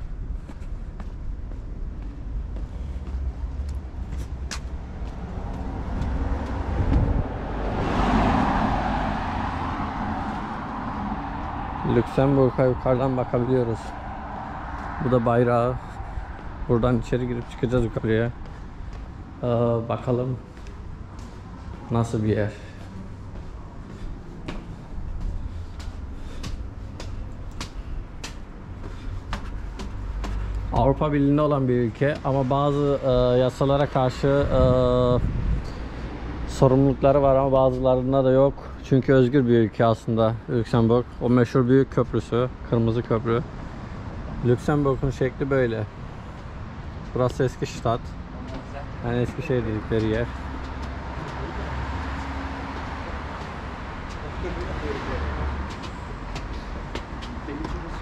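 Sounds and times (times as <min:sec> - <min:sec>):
footsteps on stone steps: 0:00.0 - 0:07.4, 0:15.8 - 0:32.8, 0:48.4 - 0:58.0
steady low rumble: 0:00.0 - 0:35.8
car passing: 0:00.9 - 0:58.0.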